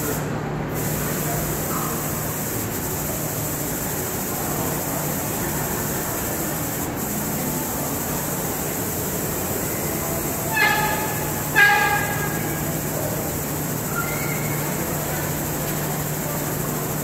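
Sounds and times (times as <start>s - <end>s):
short horn-like tones: 10.2s - 14.7s.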